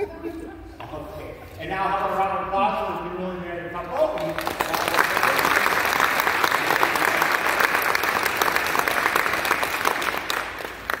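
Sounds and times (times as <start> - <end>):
audience applauding: 4.1 - 11.0.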